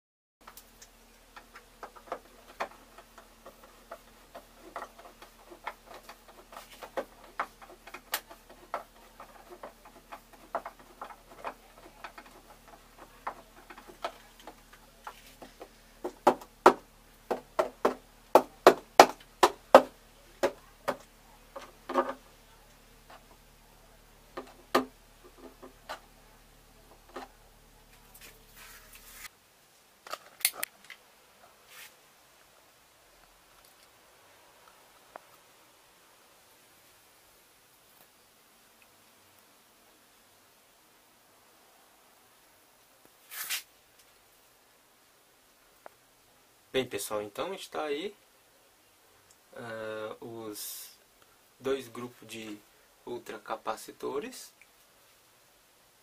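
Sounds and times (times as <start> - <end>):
hand tools clicking and knocking: 0.4 - 22.3, 24.3 - 26.1.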